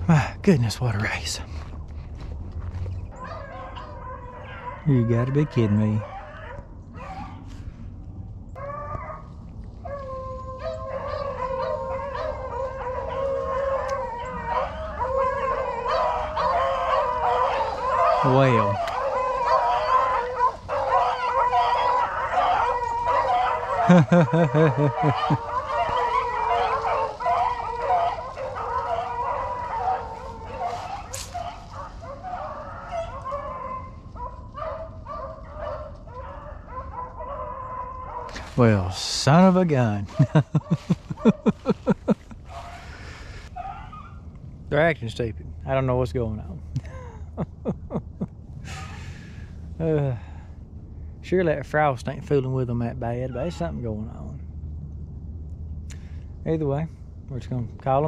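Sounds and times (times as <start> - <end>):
low rumble: 0.0 - 4.1, 37.8 - 58.0
dogs baying: 2.8 - 7.7, 8.5 - 44.3
dogs howling: 3.1 - 7.5, 8.5 - 44.3.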